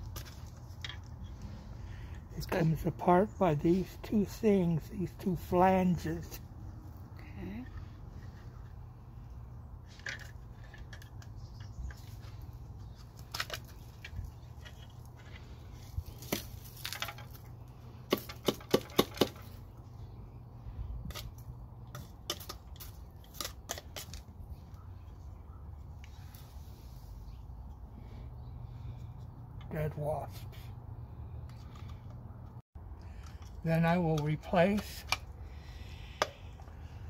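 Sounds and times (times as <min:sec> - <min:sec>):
plastic parts clicking and knocking: 0:18.1 - 0:19.6.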